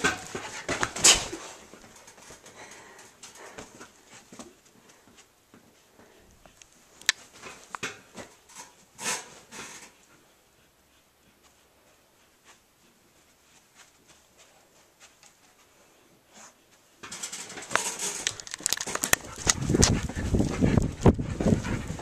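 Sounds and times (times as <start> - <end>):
camera handling clicks and thumps: 18.2 - 19.6.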